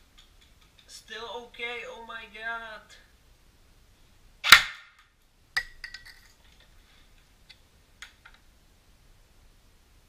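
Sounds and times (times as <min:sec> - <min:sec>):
airsoft gun shot with ringing: 0:04.4 - 0:05.0.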